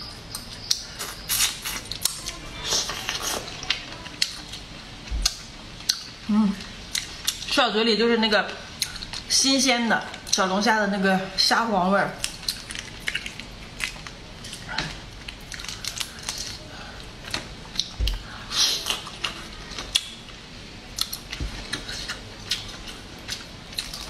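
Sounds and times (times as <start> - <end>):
crayfish shells crackling: 12.2 - 18.0.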